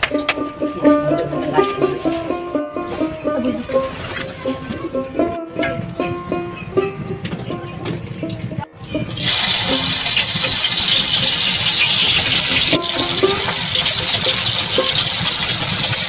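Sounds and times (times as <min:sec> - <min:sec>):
hot oil sizzling: 0:09.0 - 0:16.0.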